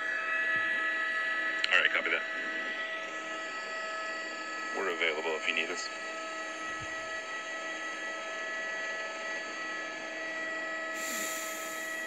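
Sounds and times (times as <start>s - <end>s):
thin whining tones: 0.0s - 12.0s
electrical hum and hiss: 10.9s - 12.0s
bright hiss: 11.0s - 11.9s.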